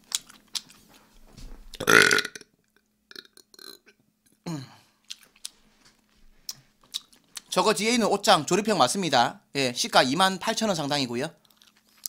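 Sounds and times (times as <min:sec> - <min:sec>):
man burping: 0:01.8 - 0:02.4, 0:03.1 - 0:04.8.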